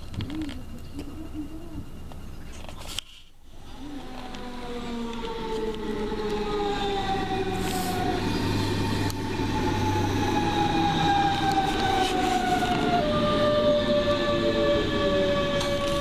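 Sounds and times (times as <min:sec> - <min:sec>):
electric train motor whine: 0:03.4 - 0:16.0
train braking: 0:03.5 - 0:16.0
wheels rumbling on rail: 0:03.5 - 0:16.0.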